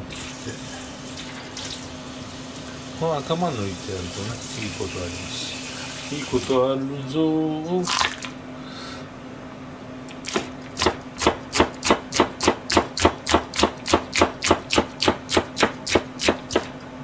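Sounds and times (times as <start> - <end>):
knife chopping on plastic board: 10.3 - 16.8.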